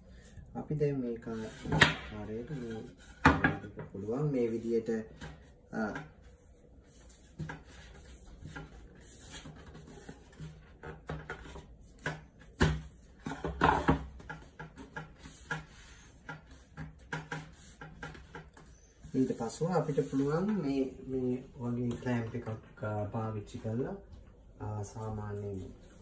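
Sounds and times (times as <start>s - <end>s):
wooden boards knocking and scraping: 2.8s - 3.9s, 10.4s - 18.6s.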